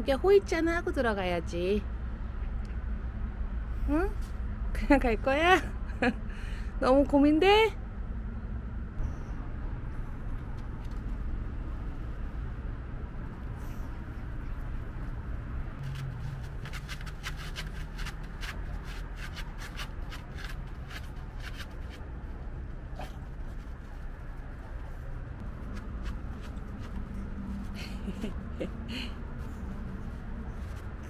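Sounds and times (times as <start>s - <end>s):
dog paws pattering on turf: 23.0s - 28.3s.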